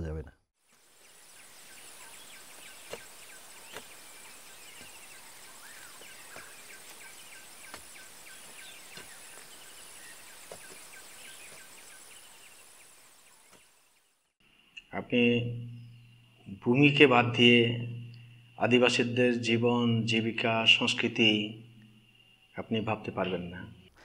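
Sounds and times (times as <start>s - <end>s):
birds chirping: 0.0s - 24.0s
pulsing insect drone: 0.7s - 13.5s, 14.4s - 23.9s.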